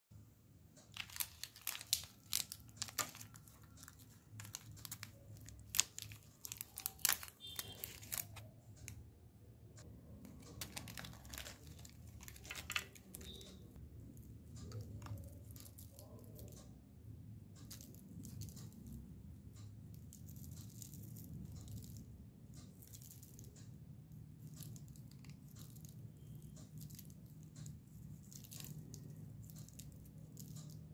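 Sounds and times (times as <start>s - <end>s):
low steady hum: 0.2s - 30.9s
plastic wrapper crinkling: 0.8s - 9.0s, 10.2s - 13.7s, 24.4s - 30.9s.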